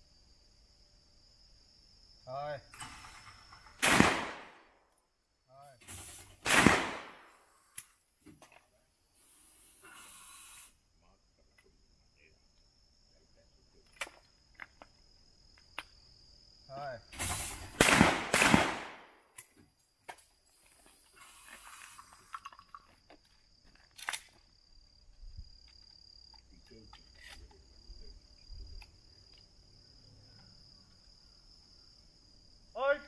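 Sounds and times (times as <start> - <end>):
shotgun shots with echo: 3.8 - 4.6, 6.4 - 7.3, 17.8 - 19.2.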